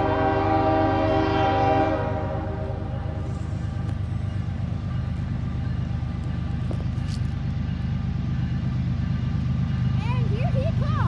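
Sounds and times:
diesel locomotives rumbling: 0.0 - 11.0.

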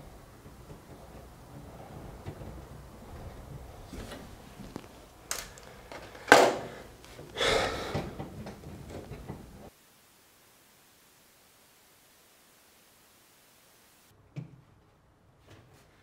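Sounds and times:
wire handling clicks and rustles: 0.1 - 9.7.

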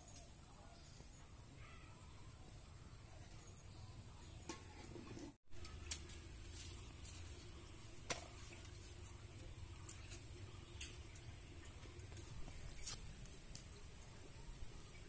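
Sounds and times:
garlic skins crackling and clicking: 5.6 - 15.0.

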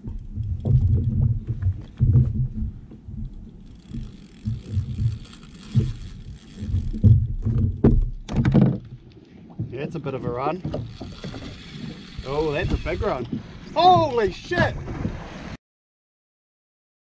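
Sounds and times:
thumps on kayak hull: 0.6 - 3.1, 6.7 - 9.0, 13.1 - 15.2
fishing reel cranking: 3.2 - 7.1, 10.7 - 13.2.

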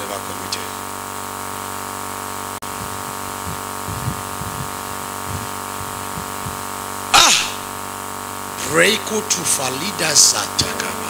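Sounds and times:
electrical hum and hiss: 0.0 - 11.0
loud vocal exclamation: 7.1 - 7.8.

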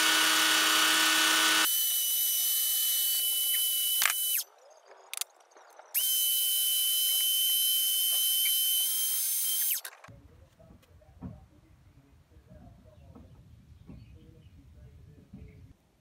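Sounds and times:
electric drill whining: 0.0 - 4.5, 6.0 - 9.9.

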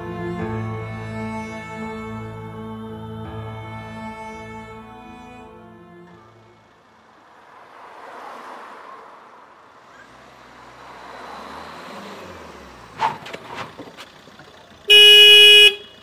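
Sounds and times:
street traffic noise: 0.0 - 16.0
car engine slowing down: 5.9 - 14.9.

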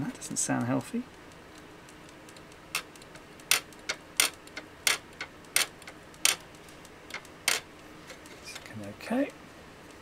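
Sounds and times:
soldering iron ticking: 0.0 - 7.9.

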